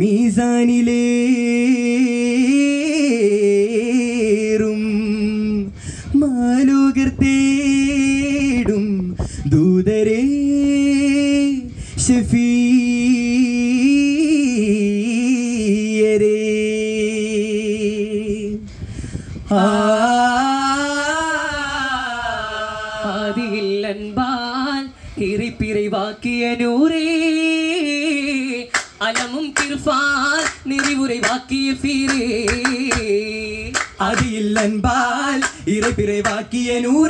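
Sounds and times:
man singing long held notes: 19.4 - 37.0.

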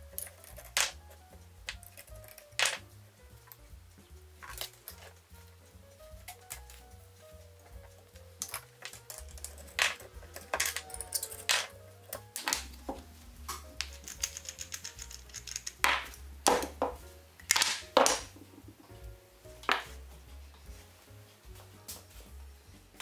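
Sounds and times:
background music: 0.0 - 23.0
metallic clinks and knocks: 0.1 - 3.6, 7.7 - 18.3.

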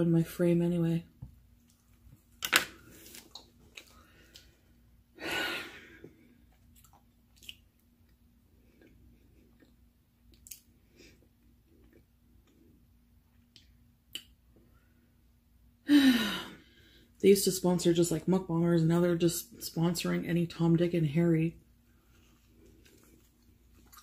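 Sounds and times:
faint steady hum: 0.0 - 24.0
person chewing food: 1.6 - 4.7, 6.0 - 14.3, 22.0 - 24.0.

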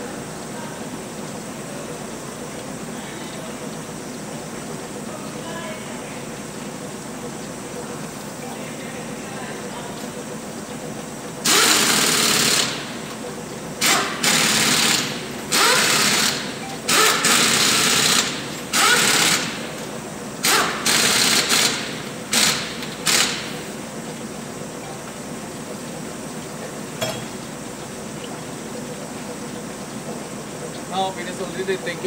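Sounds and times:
pneumatic impact wrench bursts: 11.4 - 13.0, 13.8 - 19.7, 20.4 - 23.6.

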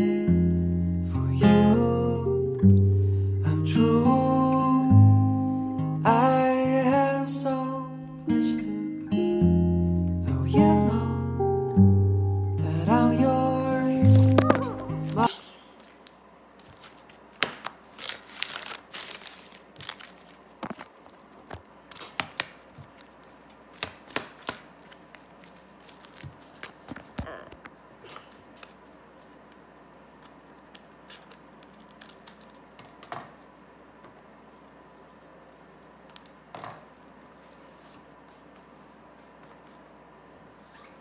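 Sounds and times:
paper rustling and tearing: 14.4 - 21.1, 22.9 - 27.2, 30.2 - 32.8.

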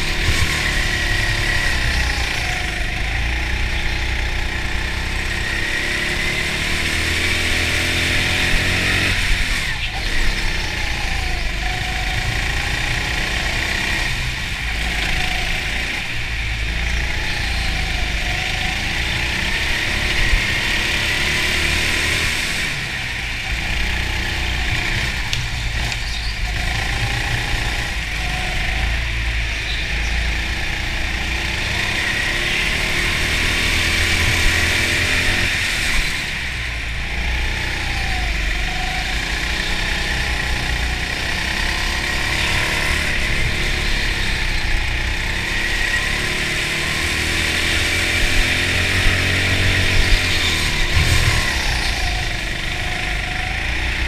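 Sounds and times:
go-kart motor revving: 0.0 - 54.0.

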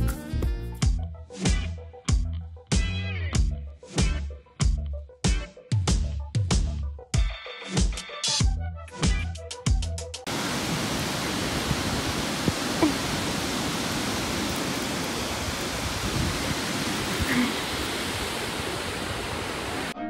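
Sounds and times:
steady rushing noise: 10.3 - 20.0.

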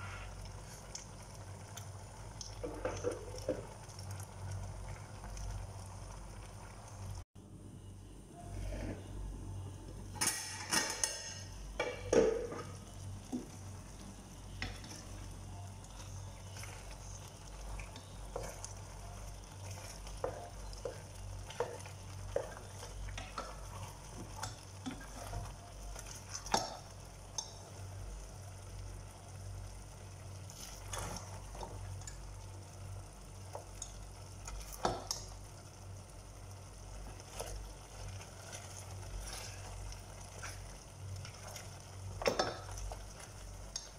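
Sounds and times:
spatula knocking and scraping pot: 10.8 - 13.6, 19.6 - 25.6.

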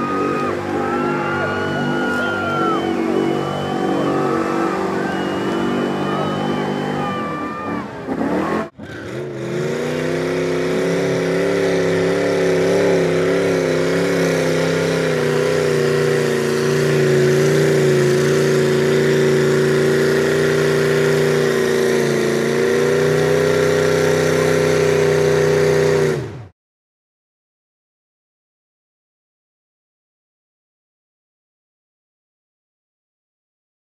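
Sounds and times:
truck engine at high revs: 0.0 - 26.5.

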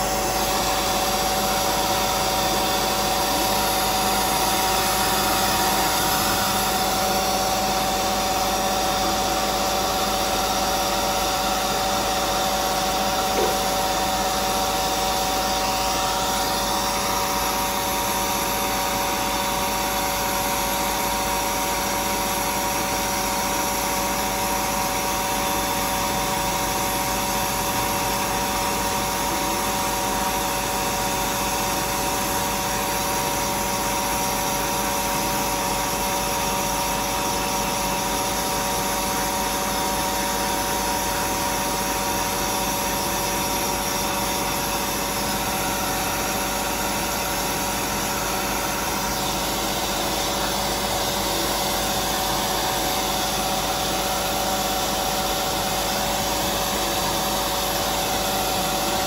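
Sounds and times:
electric blower motor whining: 0.0 - 19.2, 41.9 - 59.0.

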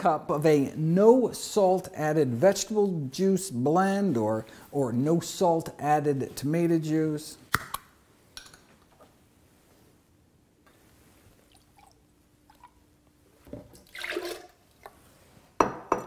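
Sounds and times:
juice splashing into blender: 13.7 - 15.0.

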